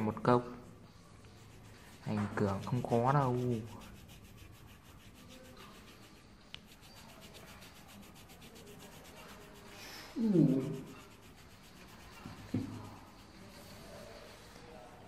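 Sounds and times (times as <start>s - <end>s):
pencil scratching on paper: 1.2s - 14.9s.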